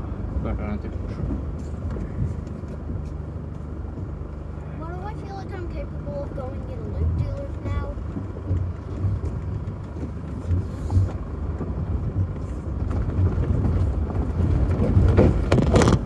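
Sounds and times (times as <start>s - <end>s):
vehicle rumble from cabin: 0.0s - 16.0s
knocks and rattles: 6.8s - 16.0s.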